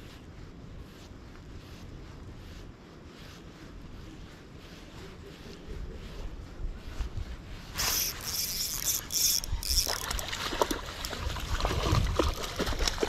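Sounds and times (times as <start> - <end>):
small ticks: 7.9 - 11.2
water sloshing: 9.0 - 13.0
fish splashing in water: 9.7 - 13.0.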